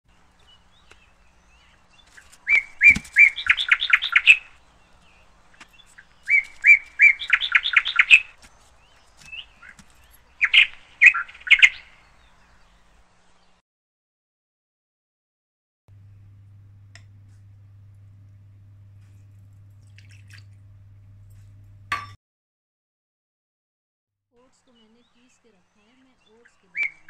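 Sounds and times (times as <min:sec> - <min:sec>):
bird singing: 0:00.1 - 0:13.6, 0:24.7 - 0:27.0.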